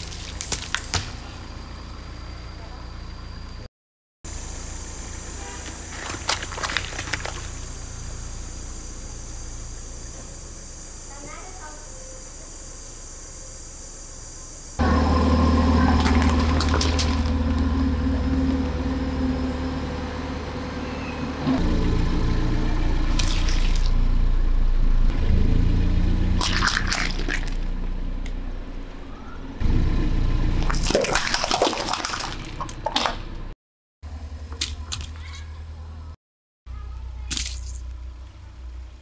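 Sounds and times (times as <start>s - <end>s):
car engine humming: 0.0s - 3.7s, 4.3s - 31.0s
tyre crushing objects: 5.9s - 7.5s
liquid squelches: 15.9s - 17.4s, 23.1s - 24.0s, 26.4s - 27.7s, 30.6s - 33.2s
sharp cracks: 26.4s - 27.7s.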